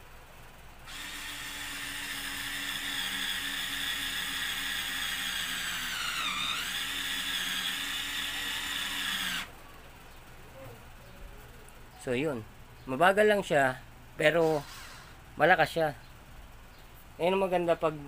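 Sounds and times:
electric screwdriver motor whining: 0.9s - 9.5s.

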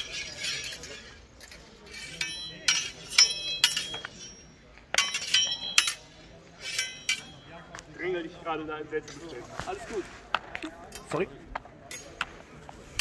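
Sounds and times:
steel swords clashing: 0.0s - 7.7s.

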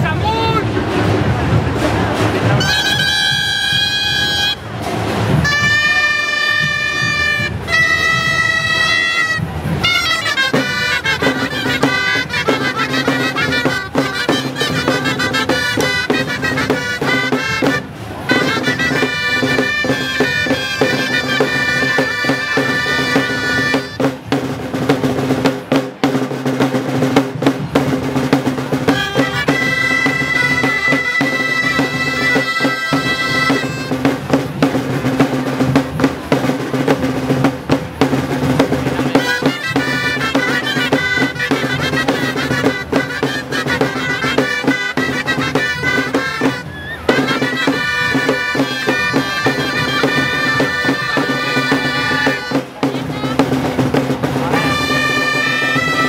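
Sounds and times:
drum beat: 0.0s - 56.0s
reedy shawm melody: 0.0s - 56.0s.

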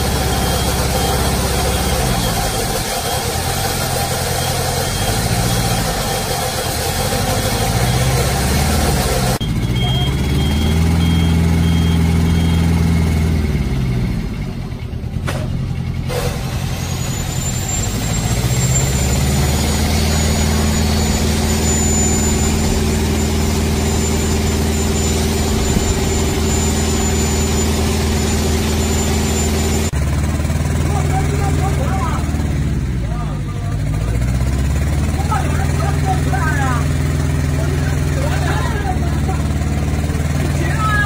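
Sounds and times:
crane engine running: 0.0s - 41.0s
thin high whine: 16.7s - 30.0s.

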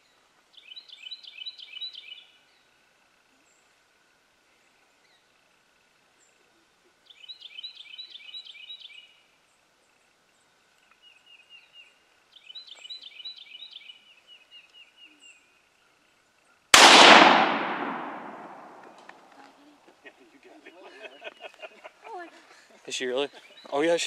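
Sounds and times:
gunshot with echo: 16.8s - 19.0s.

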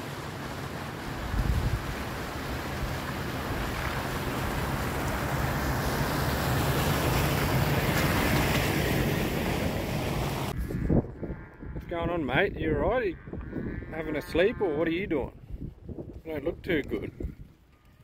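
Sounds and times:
road noise: 0.0s - 10.6s
wind: 0.0s - 18.0s.

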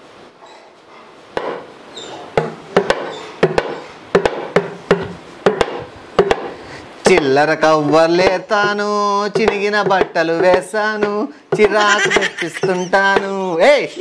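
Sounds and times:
hand drum beaten by hand: 8.2s - 13.4s.

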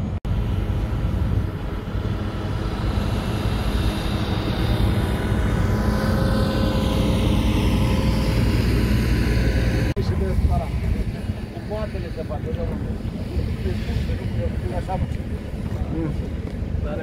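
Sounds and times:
road roller diesel engine: 0.0s - 13.2s.

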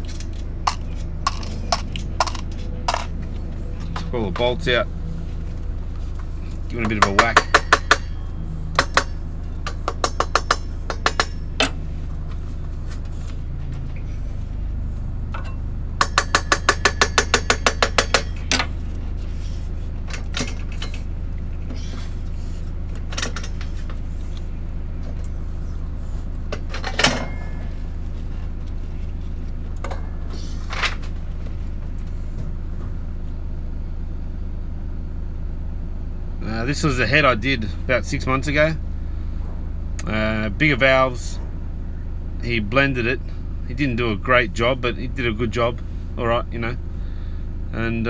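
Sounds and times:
steady low hum: 0.0s - 48.0s
mallet striking metal: 6.8s - 11.8s.

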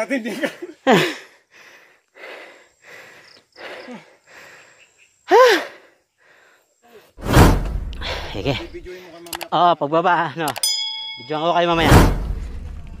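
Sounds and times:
voiced gasp: 0.9s - 6.7s
person breathing hard: 0.9s - 7.1s
loud rumbling burst: 7.2s - 8.9s.

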